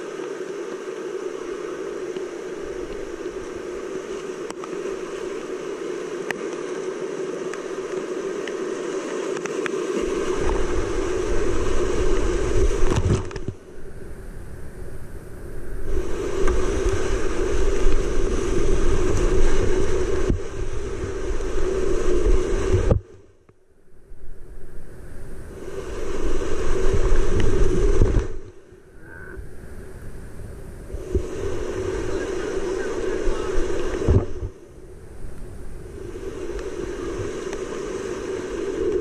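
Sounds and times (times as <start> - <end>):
whitewater rapids rushing: 0.0 - 13.5, 25.5 - 28.5, 30.9 - 34.5, 35.9 - 39.0.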